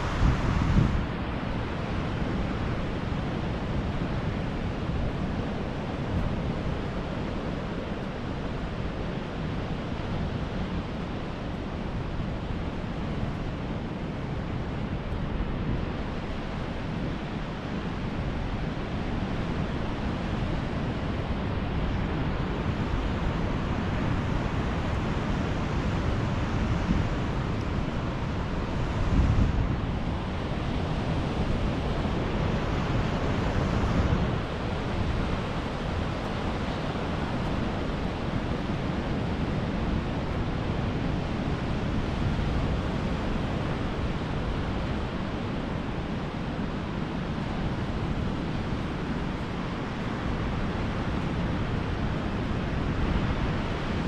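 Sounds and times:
sea surf breaking: 0.0 - 2.9
wind rumbling on microphone: 0.0 - 54.0.

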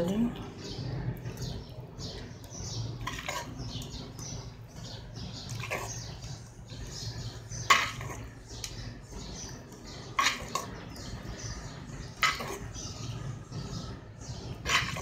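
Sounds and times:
metal spoon scraping pot: 2.6 - 11.2, 11.8 - 15.0.

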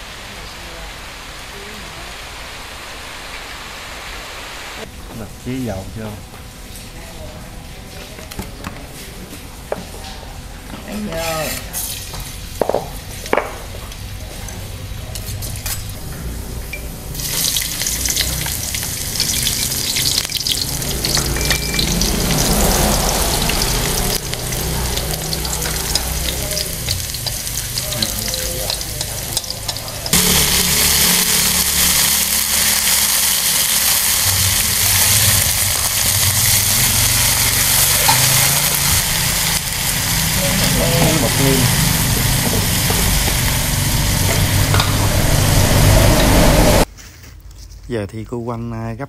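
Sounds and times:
garlic sizzling in hot oil: 17.1 - 46.9.

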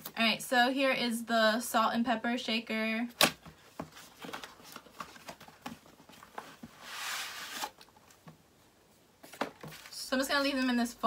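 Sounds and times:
cardboard insert sliding out: 6.7 - 7.8.

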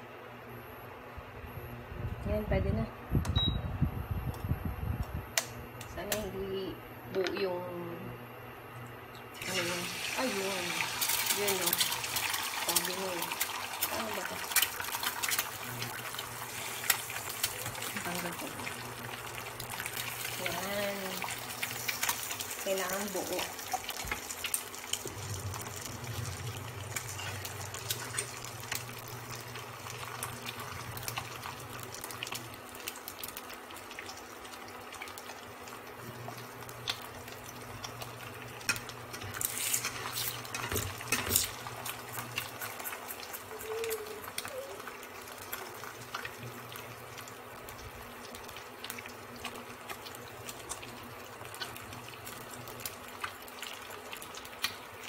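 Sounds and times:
cooktop low hum: 0.0 - 55.0
egg sizzling in oil: 9.2 - 55.0.

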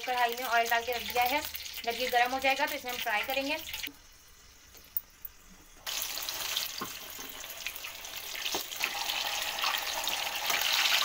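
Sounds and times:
food sizzling in hot oil: 0.0 - 11.0.

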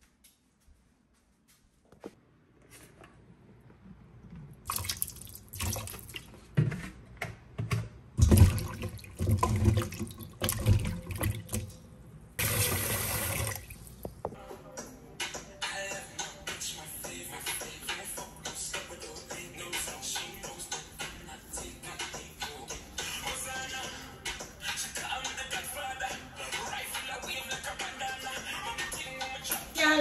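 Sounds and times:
tap water running and splashing: 4.7 - 6.2, 8.2 - 11.8, 12.4 - 13.9.

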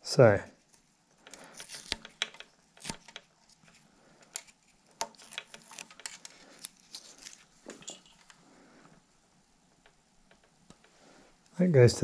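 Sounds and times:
hands handling taped cable ends: 0.7 - 8.4.

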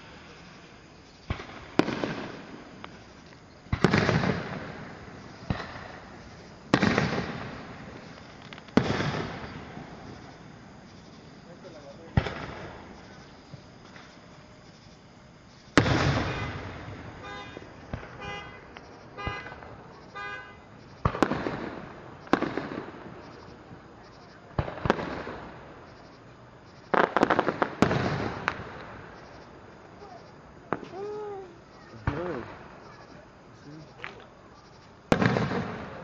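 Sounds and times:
fireworks booming: 0.0 - 23.8, 24.4 - 25.9, 26.9 - 34.4, 35.0 - 36.0.

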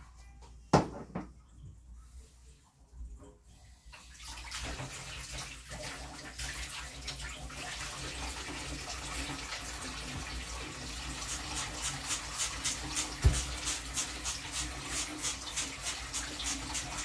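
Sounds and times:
faucet running into metal sink: 4.1 - 17.0.

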